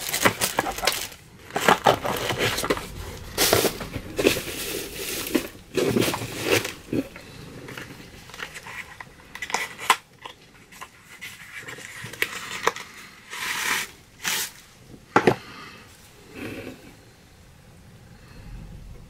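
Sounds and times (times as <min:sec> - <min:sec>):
wrapping crinkling and tearing: 0:00.0 - 0:14.8.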